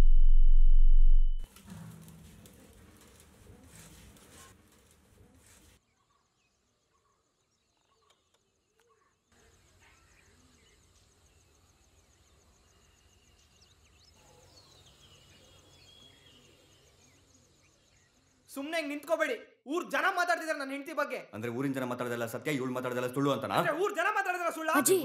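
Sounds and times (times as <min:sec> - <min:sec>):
high pulsing trill: 0:00.0 - 0:01.4.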